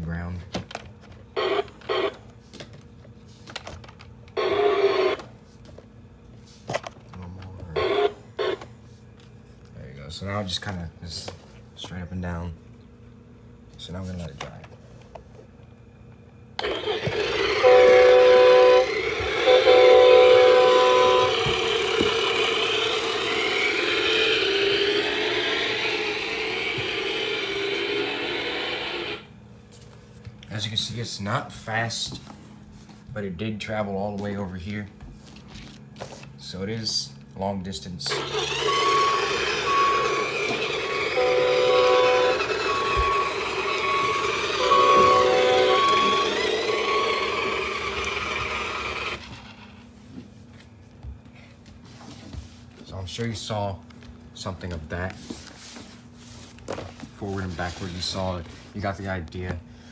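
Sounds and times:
toy truck motor whir: 4.4 - 5.2, 16.6 - 29.2, 38.0 - 49.8
toy horn chord: 16.6 - 29.2, 38.1 - 49.2
engine-like electronic hum: 16.6 - 29.4, 38.0 - 49.9.

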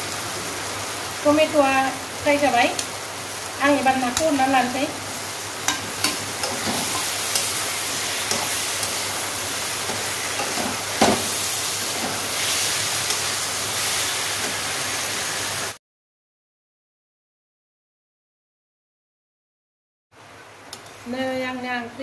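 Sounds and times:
food sizzling in hot oil: 0.0 - 15.8
metal spatula scraping pan: 5.7 - 9.2.

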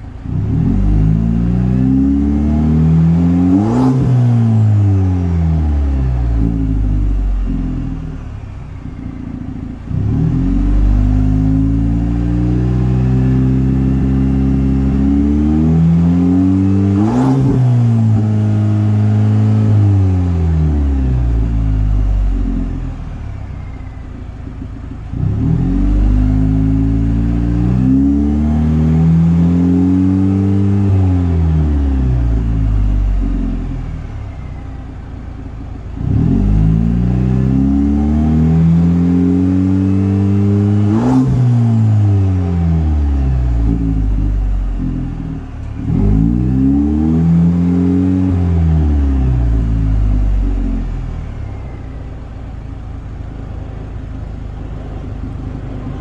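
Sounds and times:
engine revving: 0.0 - 23.8, 24.5 - 34.7, 35.9 - 56.0.

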